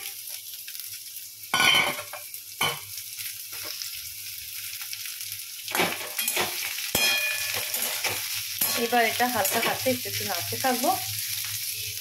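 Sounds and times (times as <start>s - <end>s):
vegetables sizzling in hot oil: 0.0s - 12.0s
metal spatula scraping wok: 5.7s - 10.0s.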